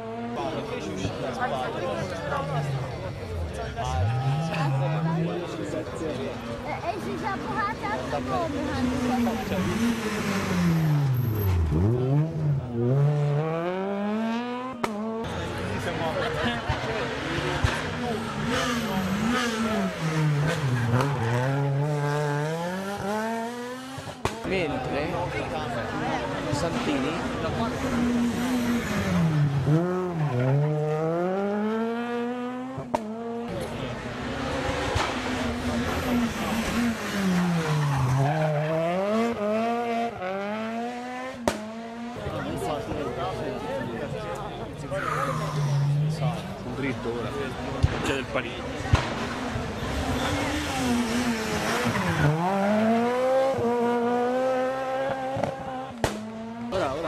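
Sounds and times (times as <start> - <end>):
car engine accelerating hard: 0.0 - 24.3, 24.9 - 57.0
tyres and exhaust rushing: 0.0 - 57.0
sharp crack: 34.9 - 35.3, 41.4 - 41.7, 48.9 - 49.4, 55.4 - 56.8.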